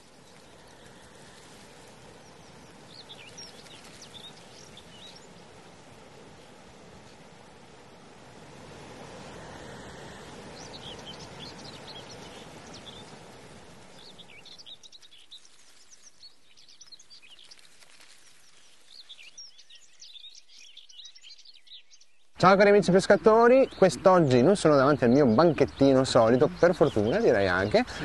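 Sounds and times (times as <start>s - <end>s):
stream water rushing: 0.0s - 17.3s
small birds chirping: 0.0s - 28.0s.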